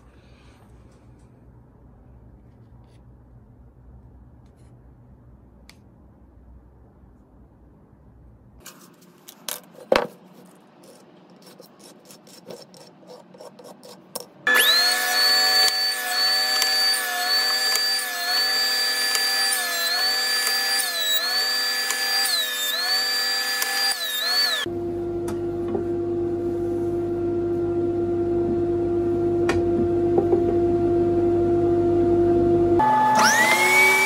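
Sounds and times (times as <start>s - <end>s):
jointer whining: 12.3s - 24.7s.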